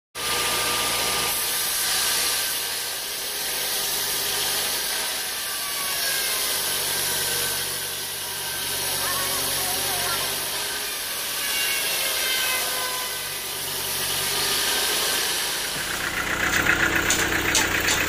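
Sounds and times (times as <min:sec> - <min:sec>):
band saw cutting log: 0:00.2 - 0:18.0
motor humming: 0:12.6 - 0:18.0.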